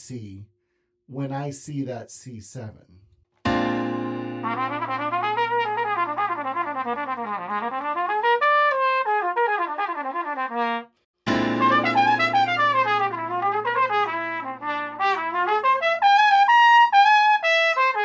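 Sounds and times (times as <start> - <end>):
trumpet playing jazz runs: 4.4 - 10.9, 11.6 - 18.0
sustained backing chord: 11.3 - 14.2.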